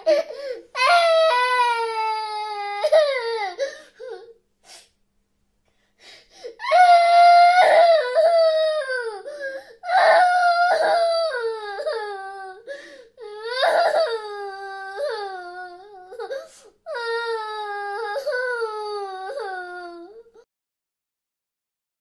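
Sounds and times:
high-pitched wailing cries: 6.6 - 12.6.

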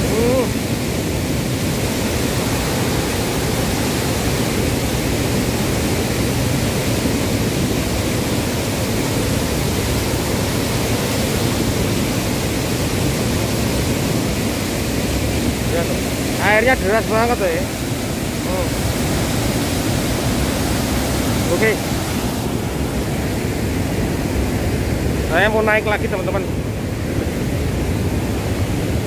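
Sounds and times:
heavy rush of water: 0.0 - 29.0.

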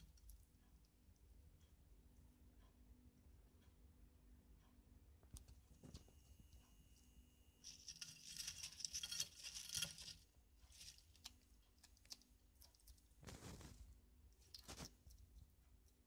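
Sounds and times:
lizard crunching lettuce: 7.6 - 15.2.

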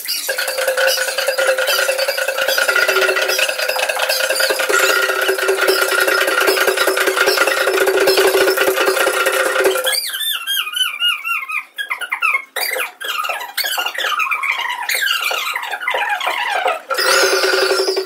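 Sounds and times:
drums: 0.2 - 9.9, 16.7 - 18.0
steady held tones: 0.2 - 9.9, 16.9 - 18.0
rapid rattling: 0.2 - 10.0, 16.8 - 18.0.

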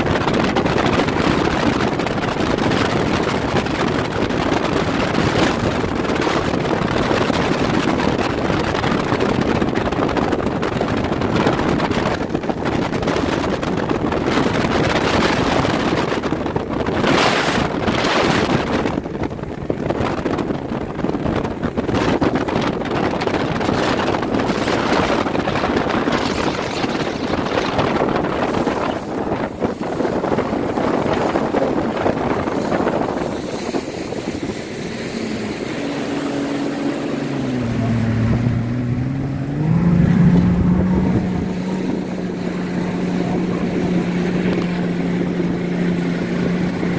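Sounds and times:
boat motor: 0.0 - 46.9
water noise: 0.0 - 46.9
wind rushing over microphone: 0.0 - 46.9.

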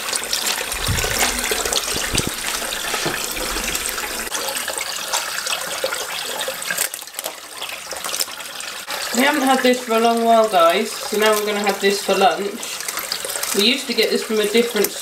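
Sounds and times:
water splashing: 0.3 - 4.3
tap running into water: 0.6 - 4.3
dull bumps: 0.7 - 4.3.

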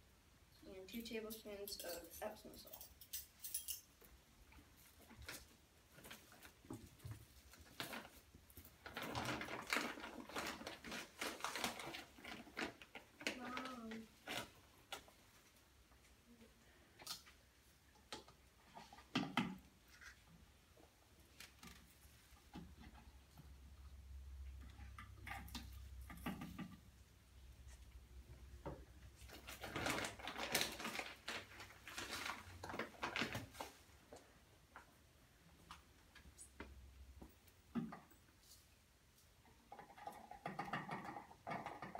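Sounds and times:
plastic rustling and scraping: 4.6 - 15.6, 29.2 - 34.2
plastic bottles clicking and rattling: 5.1 - 15.1, 29.3 - 33.8, 39.6 - 41.9
plastic bottles knocking and clicking: 39.6 - 41.9.

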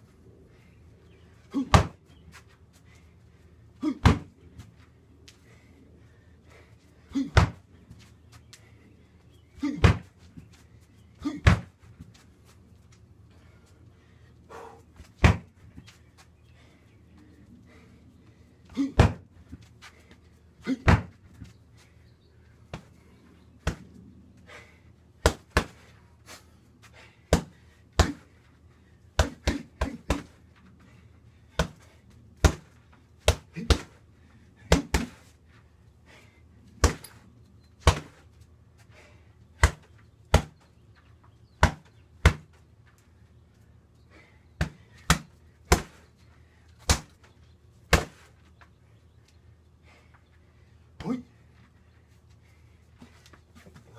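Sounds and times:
punches smacking heavy bag: 15.2 - 15.5, 20.8 - 21.2, 34.7 - 35.2.

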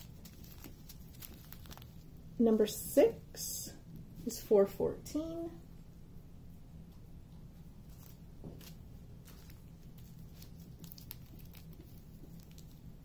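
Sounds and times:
plastic bags crinkling: 0.0 - 2.1, 7.9 - 12.9
low background hum: 0.0 - 13.0.

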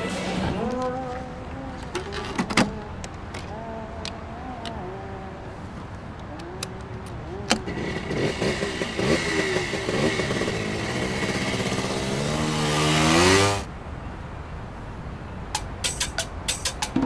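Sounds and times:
motorcycle engine revving: 7.4 - 13.7.

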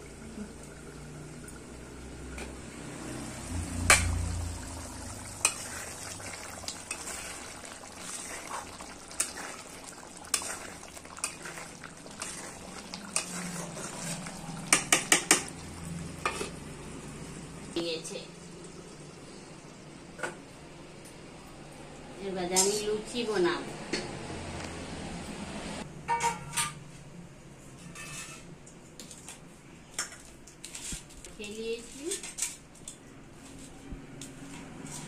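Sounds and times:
faint steady simmer: 0.0 - 26.8.

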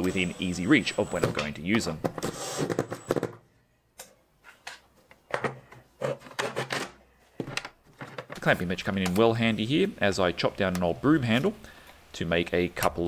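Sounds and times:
cordless drill driving screw: 2.2 - 3.2.

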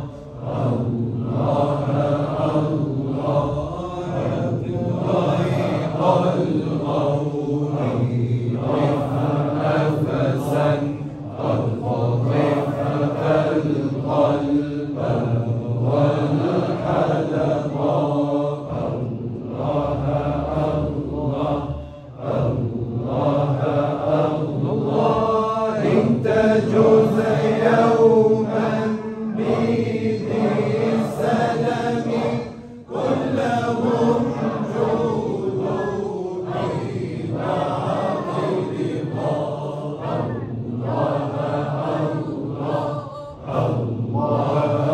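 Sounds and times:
men chanting together: 0.0 - 44.9.

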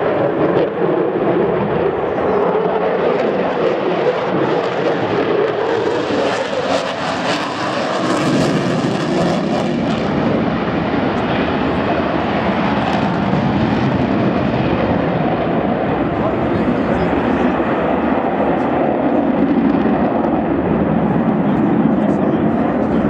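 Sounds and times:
aircraft engine noise: 0.0 - 23.0.

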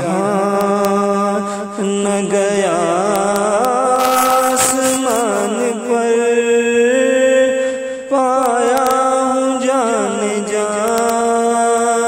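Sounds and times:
person singing devotional song: 4.0 - 5.9.

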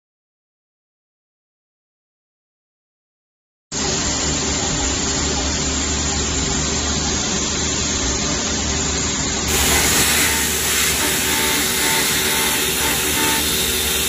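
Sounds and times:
low spindle hum: 3.8 - 14.0
machine milling plastic: 3.8 - 14.0
milling cutter and air hiss: 3.8 - 14.0.

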